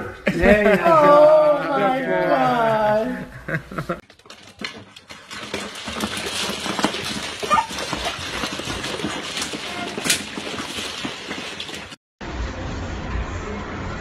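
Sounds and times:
puppies eating with smacking sounds: 4.0s - 11.9s.

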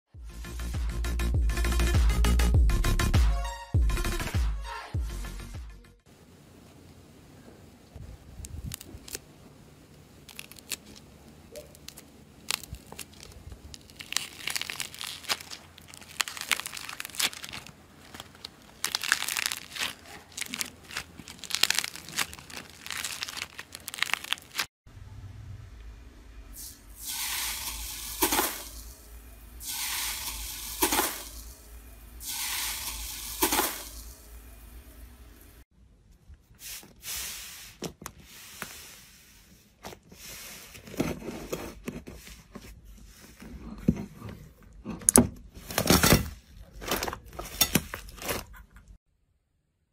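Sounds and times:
slime crinkling and clicking: 10.2s - 24.7s
bead slime hissing and crackling: 11.7s - 24.7s, 26.6s - 34.7s
low hum: 24.9s - 27.0s.

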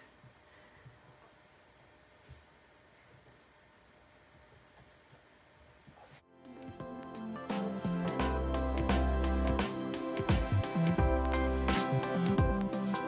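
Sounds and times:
pencil scratching on paper: 0.0s - 6.2s
music: 6.2s - 13.0s.

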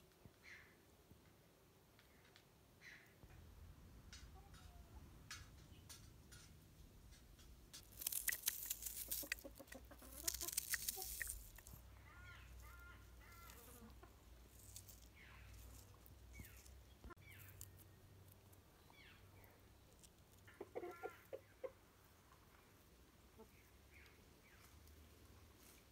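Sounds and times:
loud crackling and rustling: 7.8s - 11.8s
chickens clucking: 8.0s - 17.4s, 20.3s - 22.0s.

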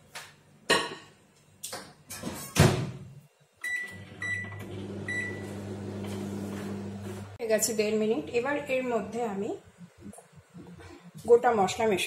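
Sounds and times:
microwave oven humming: 3.6s - 7.4s.

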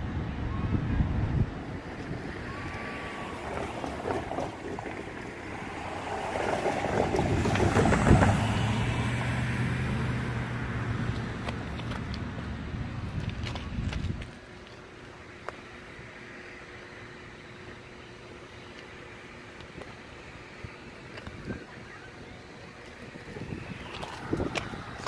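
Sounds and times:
wind buffeting microphone: 0.0s - 14.6s, 22.9s - 25.0s
minivan driving over crossing: 0.0s - 25.0s.

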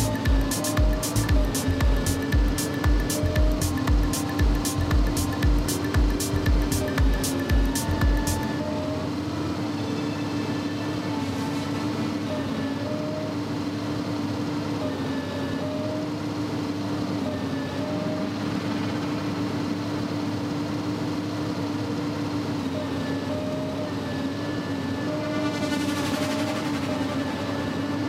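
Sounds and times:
high motor whines: 0.0s - 28.0s
model excavator mechanical hum: 0.0s - 28.0s.

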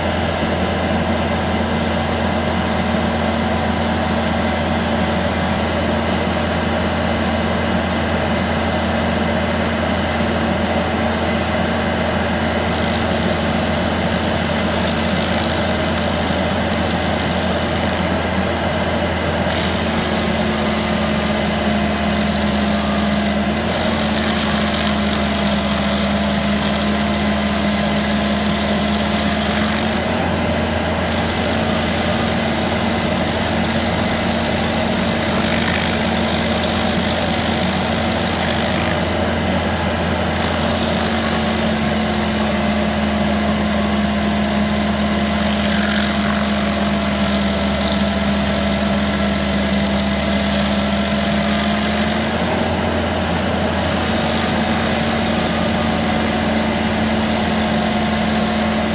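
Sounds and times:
stump grinder engine running: 0.0s - 58.9s
wood chips spraying: 31.1s - 39.0s, 40.4s - 52.1s.

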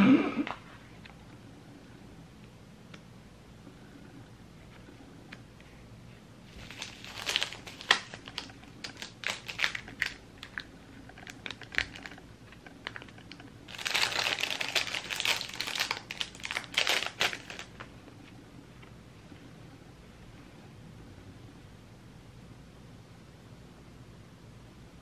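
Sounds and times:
plastic packaging crinkling: 6.5s - 17.9s.

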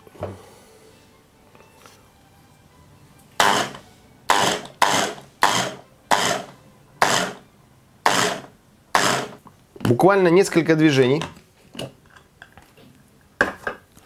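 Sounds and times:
electric food chopper bursts: 3.4s - 7.4s, 8.0s - 9.4s.

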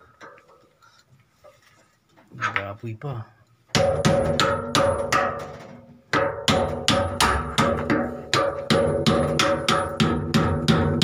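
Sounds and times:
hammer blows ringing on steel: 3.8s - 5.4s, 6.4s - 11.0s.

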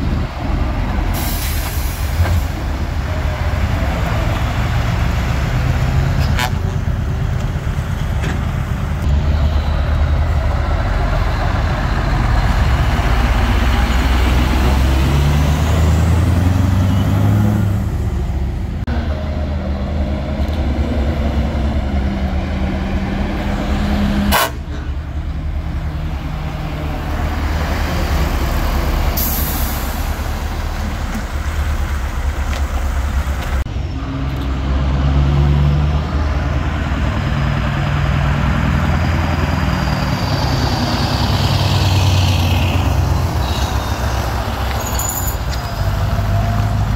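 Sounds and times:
lorry diesel engines driving past: 0.0s - 46.9s
air-brake hiss: 1.1s - 2.6s, 29.2s - 30.2s.

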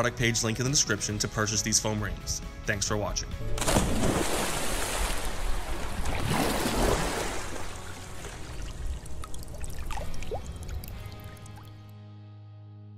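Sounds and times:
faint background music: 0.0s - 12.1s
rushing trickling water: 4.0s - 11.7s.

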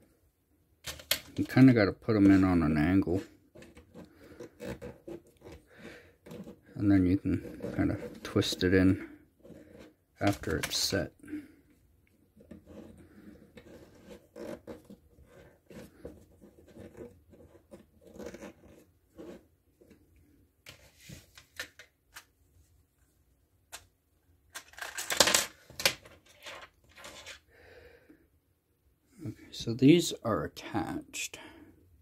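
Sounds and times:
plastic pegs clicking and scraping: 24.5s - 27.4s.

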